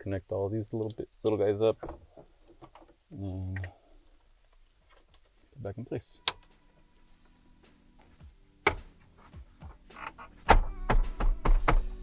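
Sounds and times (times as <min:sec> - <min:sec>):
thumps: 0:01.7 - 0:03.7, 0:08.6 - 0:12.0.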